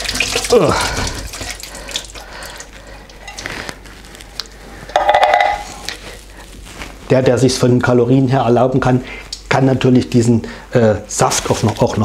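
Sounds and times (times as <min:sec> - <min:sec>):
juice dripping: 0:00.0 - 0:06.4.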